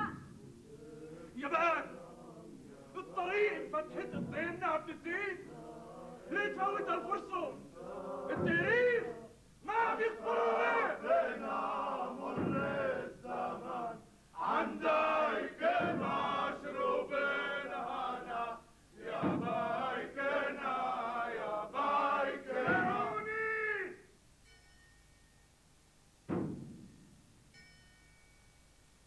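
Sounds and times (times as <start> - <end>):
men chanting together: 0.6 - 23.3.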